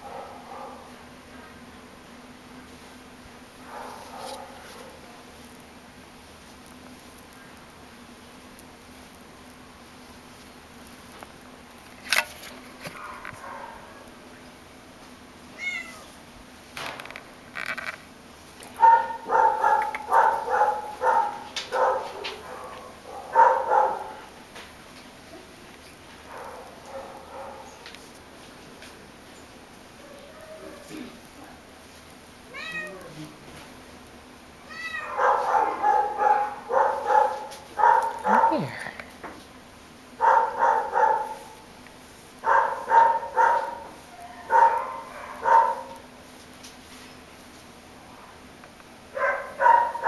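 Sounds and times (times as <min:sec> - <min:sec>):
dog barking: 0:00.0 - 0:00.9, 0:03.6 - 0:05.0, 0:13.0 - 0:14.0, 0:18.8 - 0:24.3, 0:26.2 - 0:27.8, 0:35.0 - 0:38.7, 0:40.2 - 0:41.6, 0:42.4 - 0:46.0, 0:49.1 - 0:50.0.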